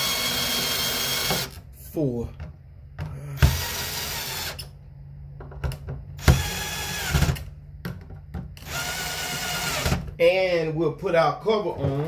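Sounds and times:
cordless drill driving screws: 0:00.0 - 0:01.6, 0:03.4 - 0:04.7, 0:06.2 - 0:07.4, 0:08.6 - 0:10.0.

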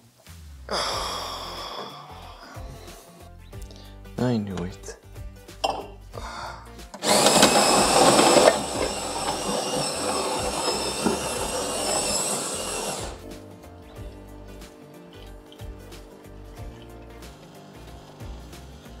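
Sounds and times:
coffee grinder whirring: 0:07.0 - 0:19.0.

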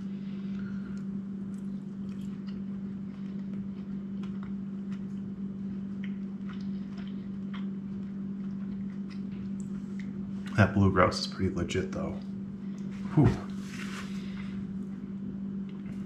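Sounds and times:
person chewing food: 0:00.0 - 0:10.6
steady low hum: 0:00.0 - 0:16.0.

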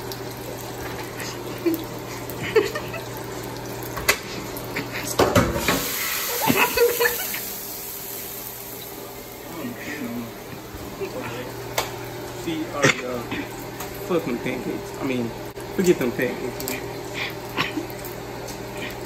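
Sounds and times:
pan knocking on sink: 0:05.2 - 0:05.8
steady hiss: 0:05.6 - 0:10.4.

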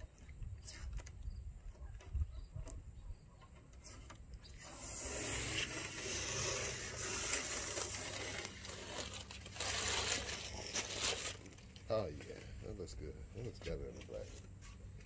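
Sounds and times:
tape peeling off: 0:03.7 - 0:11.9
masking paper crinkling: 0:04.6 - 0:12.2.

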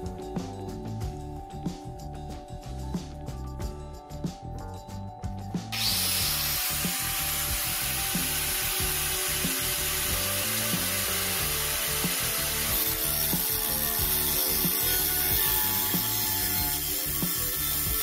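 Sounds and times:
background music: 0:00.0 - 0:18.0
angle grinder cutting metal: 0:05.7 - 0:18.0.

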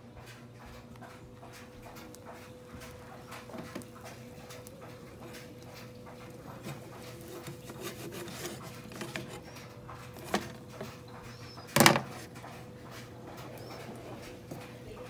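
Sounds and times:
rubbing and scraping: 0:02.3 - 0:12.6.

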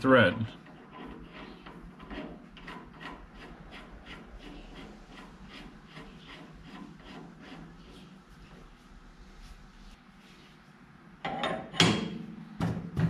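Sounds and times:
metal threads rasping: 0:00.4 - 0:08.8.

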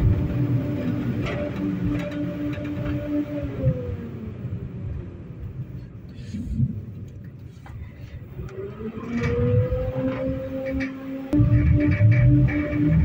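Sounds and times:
knocks from tram wheels: 0:00.0 - 0:03.2
traction motor whine rising: 0:00.0 - 0:04.8, 0:08.4 - 0:13.0
tram rumbling: 0:00.0 - 0:13.0.

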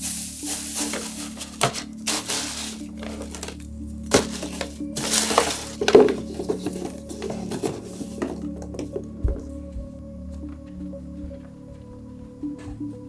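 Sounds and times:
shredded paper rustling: 0:00.0 - 0:08.4.

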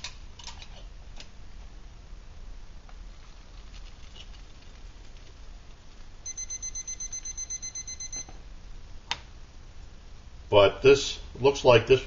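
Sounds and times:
rapid high-pitched alarm beeping: 0:06.3 - 0:08.3.

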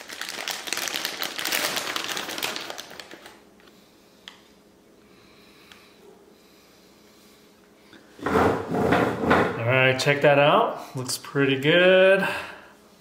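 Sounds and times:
plastic bag crinkling: 0:00.0 - 0:03.4.

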